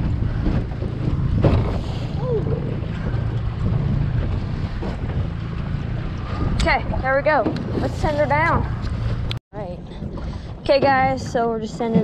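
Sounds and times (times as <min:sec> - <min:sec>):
boat motor droning: 0:00.0 - 0:09.4
wind buffeting microphone: 0:00.0 - 0:12.0.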